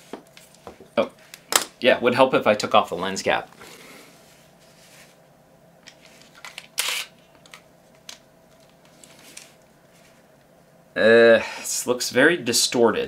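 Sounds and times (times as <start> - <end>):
camera handling clicks: 6.4 - 8.2
camera shutter click: 6.8 - 7.1.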